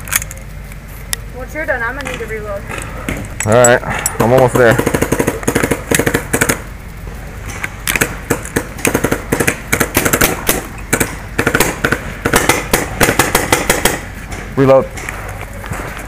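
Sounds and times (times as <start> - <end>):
paintball markers firing: 4.5 - 6.6, 7.9 - 14.0.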